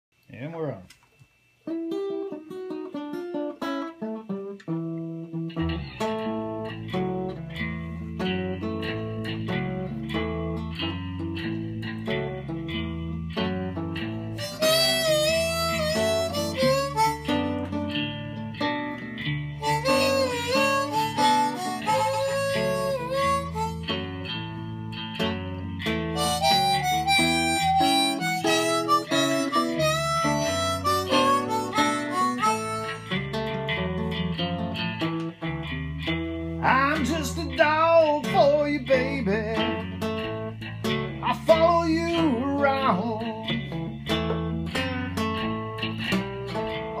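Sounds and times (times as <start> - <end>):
acoustic guitar picking: 1.6 - 47.0
harmonica with bending notes: 5.7 - 24.9, 25.6 - 34.1.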